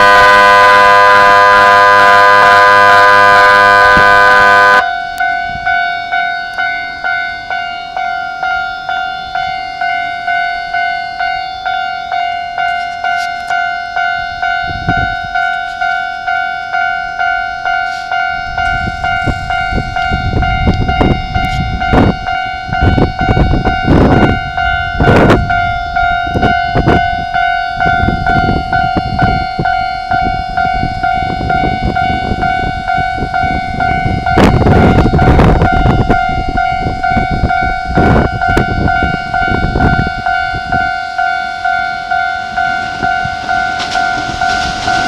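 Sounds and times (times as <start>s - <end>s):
crossing bell ringing: 0.0s - 45.0s
level crossing buzzing alarm: 0.0s - 45.0s
train rumbling and clattering: 12.1s - 45.0s.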